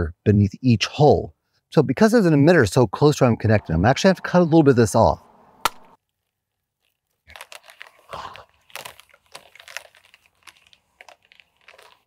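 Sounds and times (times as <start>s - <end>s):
crinkly plastic rustling: 6.0s - 12.0s.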